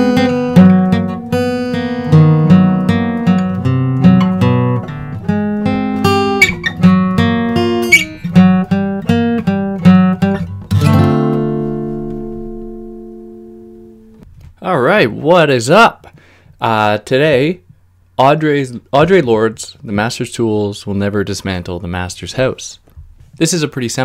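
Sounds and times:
plucked guitar notes: 0.0 - 14.2
strummed guitar chord: 0.0 - 14.2.

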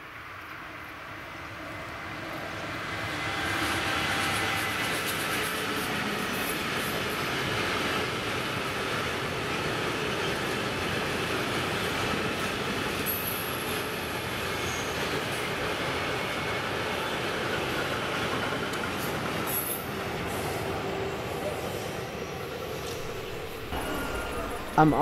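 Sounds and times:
train wheels on rails: 0.0 - 25.0
faint high squeal: 14.6 - 15.1, 22.9 - 25.0.

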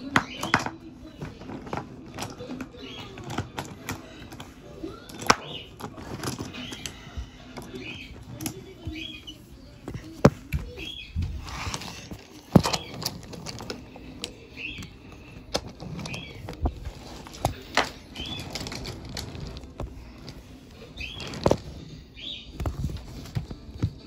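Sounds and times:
toy moved on a wooden floor: 0.3 - 23.7.

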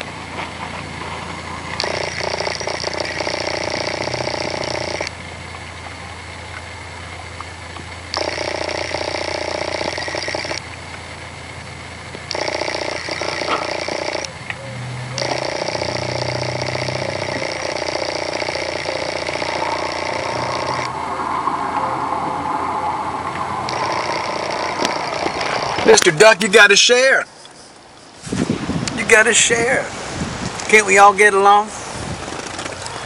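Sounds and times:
steady mechanical whir: 0.0 - 26.4.

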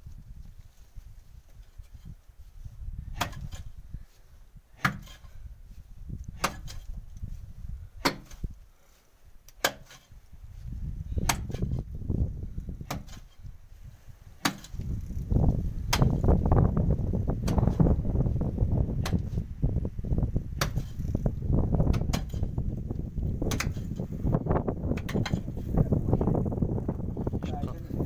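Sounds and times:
pickaxe striking stony ground: 3.1 - 3.8, 4.7 - 5.4, 6.2 - 7.0, 8.0 - 8.6, 9.5 - 10.2, 11.2 - 11.9, 12.8 - 13.4, 14.4 - 14.9, 15.8 - 16.4, 17.4 - 17.9, 19.0 - 19.4, 20.6 - 22.6, 23.4 - 24.0, 24.9 - 25.5.

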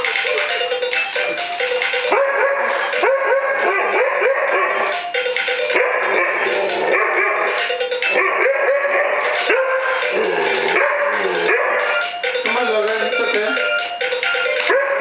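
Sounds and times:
toy robot synthesized music: 0.0 - 15.0.

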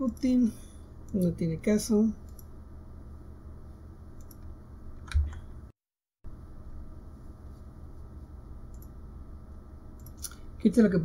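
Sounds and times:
low steady hum: 0.0 - 5.7, 6.3 - 11.0
keyboard and mouse clicks: 4.2 - 5.5, 8.7 - 8.9, 10.0 - 10.4.

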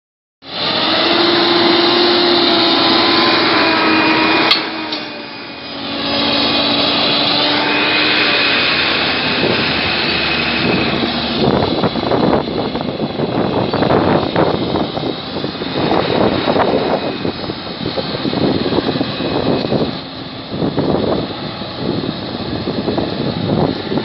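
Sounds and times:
tractor diesel engines under load: 0.4 - 24.0.

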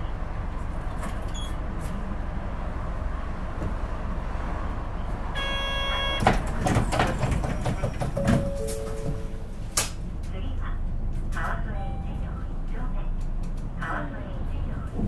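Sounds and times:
bus engine idling: 0.0 - 15.0
bus doors closing with knocks: 3.3 - 10.4
door buzzer: 5.4 - 6.3.

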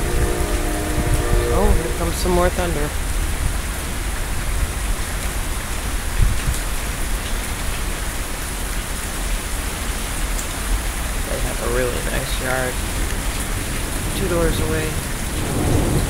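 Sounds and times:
low rumble of thunder: 0.0 - 5.3, 11.2 - 16.0
heavy rain falling: 0.0 - 16.0.

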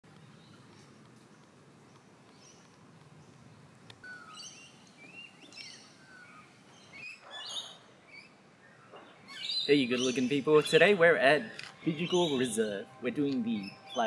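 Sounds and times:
birds chirping and whistling: 4.0 - 14.0.

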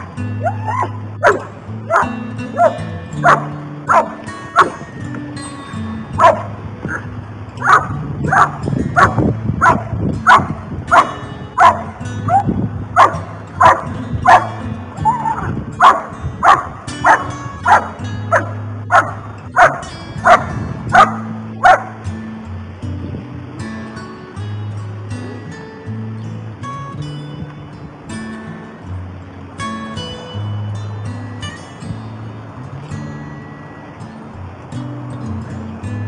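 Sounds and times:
background music: 0.0 - 9.1
dog barking: 0.4 - 4.8, 6.2 - 22.0
dog whining: 0.4 - 4.8, 15.0 - 15.5.

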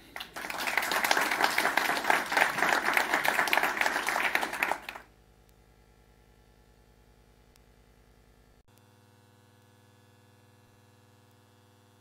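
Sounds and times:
audience applauding: 0.0 - 5.1
faint low hum: 0.0 - 12.0.

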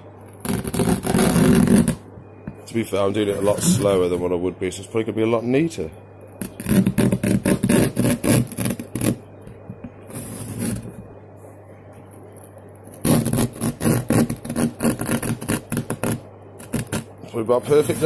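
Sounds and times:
serrated blade sawing cardboard: 0.4 - 2.0, 6.4 - 9.2, 13.0 - 18.0.

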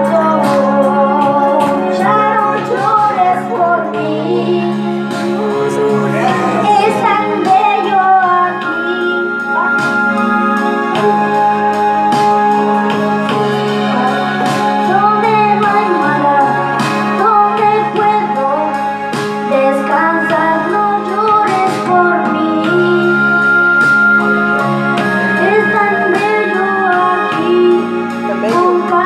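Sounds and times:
child singing a slow ballad: 0.0 - 10.2, 13.6 - 18.9, 19.5 - 23.5, 25.4 - 29.0
karaoke backing track: 0.0 - 29.0.

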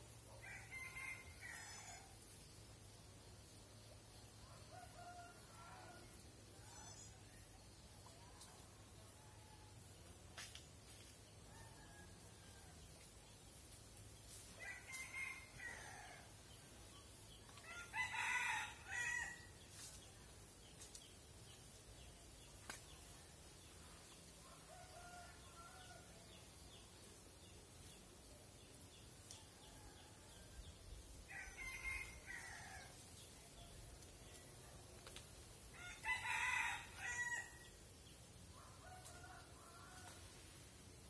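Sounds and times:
rooster crowing: 0.4 - 2.1, 17.6 - 19.4, 35.8 - 37.6.

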